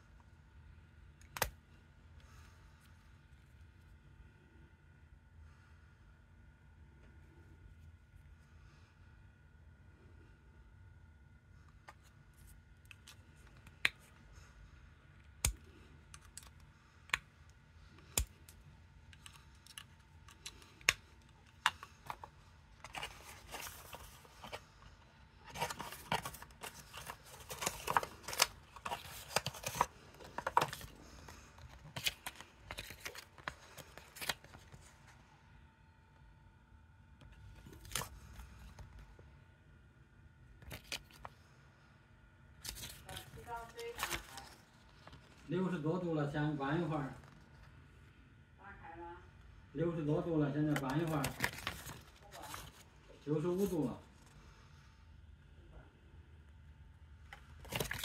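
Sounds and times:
paper and cardboard rustling: 21.5s - 35.2s, 42.6s - 45.5s, 50.7s - 52.9s.

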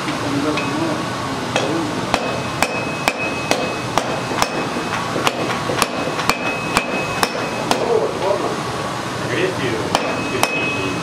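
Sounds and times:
hammer striking iron on anvil: 1.5s - 8.2s, 9.9s - 11.0s
anvil ringing: 2.1s - 8.1s, 9.9s - 11.0s.

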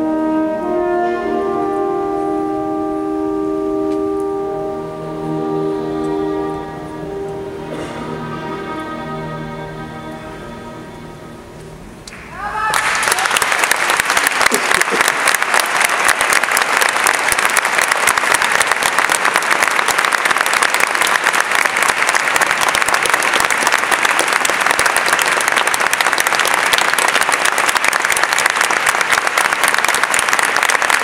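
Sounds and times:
audience applauding: 12.2s - 31.0s.

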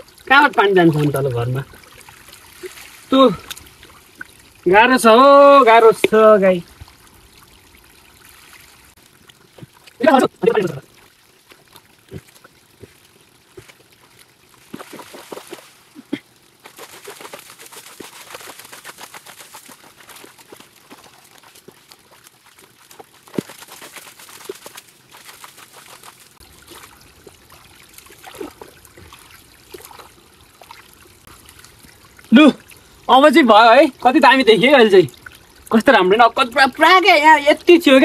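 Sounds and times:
water trickling: 0.0s - 38.0s
hands sloshing in muddy water: 14.6s - 31.8s.

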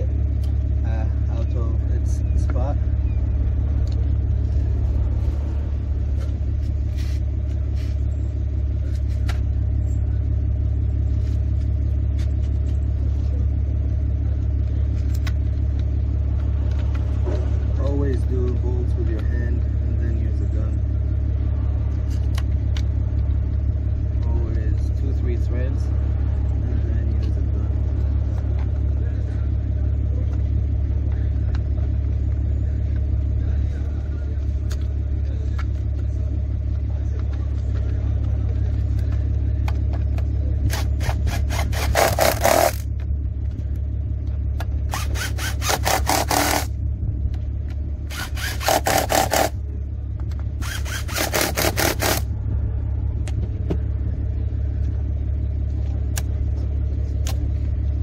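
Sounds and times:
steady low hum: 0.0s - 58.0s
power driver tightening bolts: 44.9s - 46.7s, 48.1s - 49.5s, 50.6s - 52.2s.

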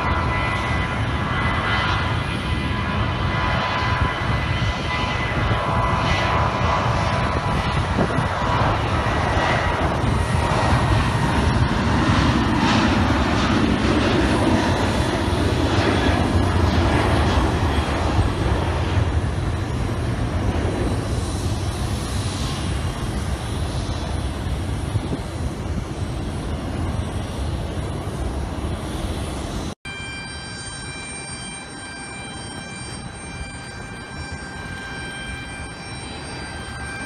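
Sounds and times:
jet engine roar: 0.0s - 37.0s
faint thin whine: 26.8s - 37.0s.

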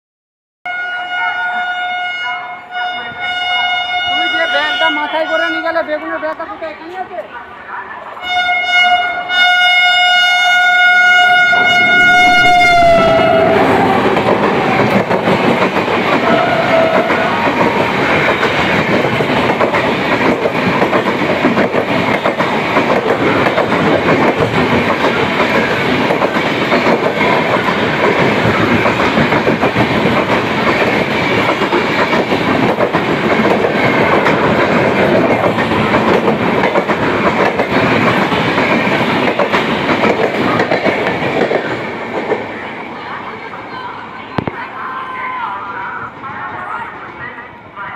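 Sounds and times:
train horn: 0.7s - 5.9s, 8.2s - 15.0s, 16.2s - 17.5s
train wheels clattering: 13.0s - 42.5s.

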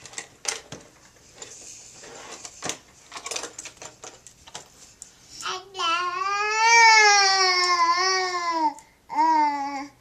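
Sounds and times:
plastic toys clicking and rattling: 0.0s - 4.7s.

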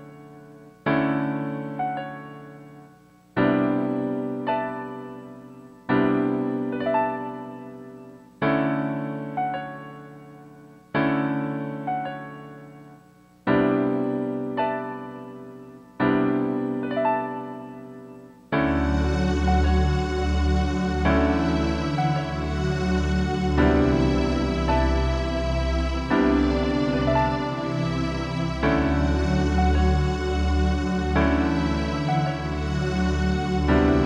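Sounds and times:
soft piano chords: 0.0s - 34.0s.

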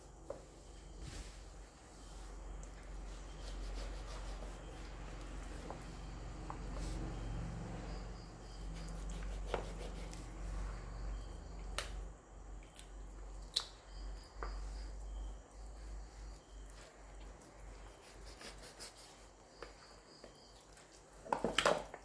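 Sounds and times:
low steady hum: 0.0s - 18.8s.

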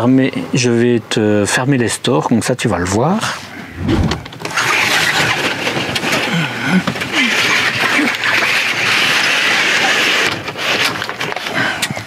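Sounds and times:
blinds sliding along tracks: 3.9s - 11.6s.

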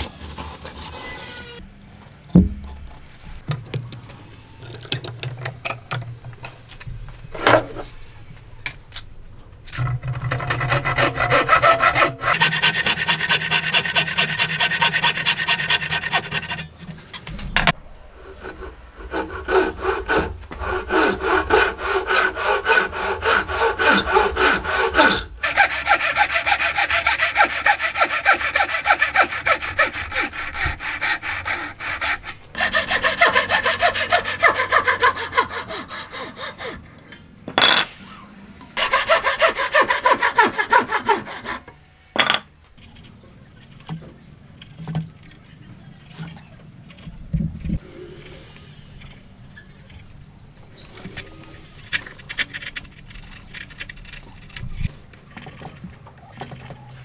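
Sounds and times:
hand saws cutting wood: 9.7s - 17.3s, 18.2s - 37.2s, 38.8s - 41.7s.

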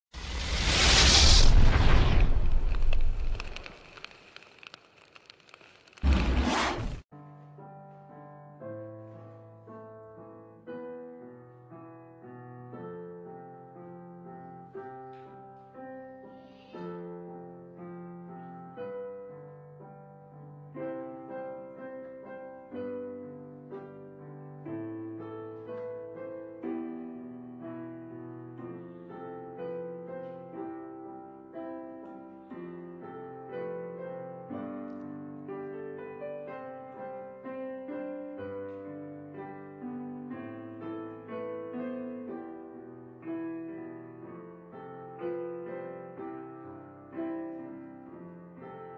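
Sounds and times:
piano music: 7.1s - 48.9s.

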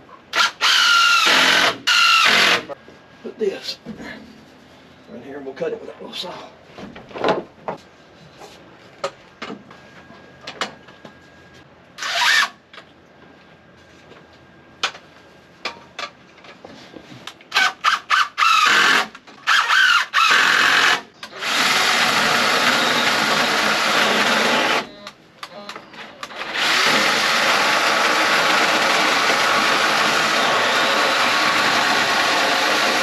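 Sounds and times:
cordless power tool spinning up: 26.3s - 33.0s.

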